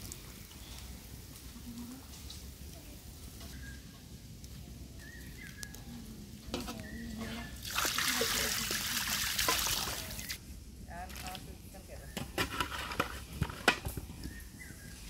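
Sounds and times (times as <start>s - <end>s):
water pouring into pot: 7.4s - 10.4s.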